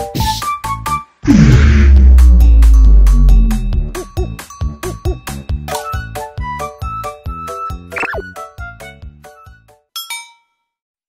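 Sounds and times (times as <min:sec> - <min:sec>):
background music: 0:00.0 - 0:09.9
bell-like ding: 0:02.3 - 0:05.6.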